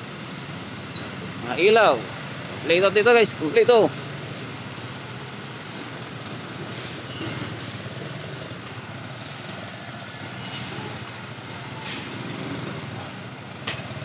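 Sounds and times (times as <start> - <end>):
motorcycle engines: 0.0 - 14.0
truck engine running slowly: 3.8 - 14.0.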